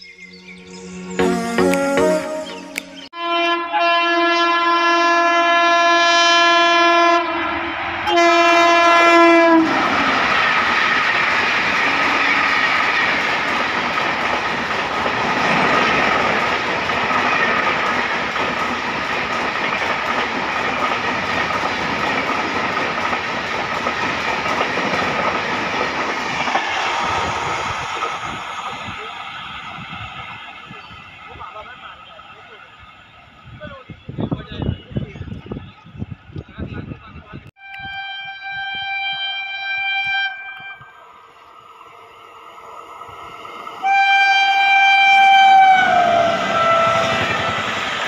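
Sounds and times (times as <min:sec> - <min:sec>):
train horn blasts: 0:01.2 - 0:09.8, 0:37.6 - 0:41.1, 0:43.8 - 0:47.6
train coaches rushing and clacking: 0:07.4 - 0:37.4, 0:42.6 - 0:48.0.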